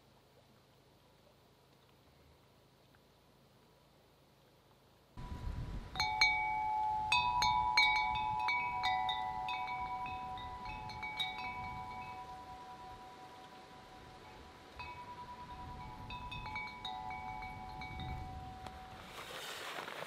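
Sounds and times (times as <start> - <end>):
wind noise on microphone: 5.2 - 20.0
metal wind chime ringing: 5.9 - 19.1.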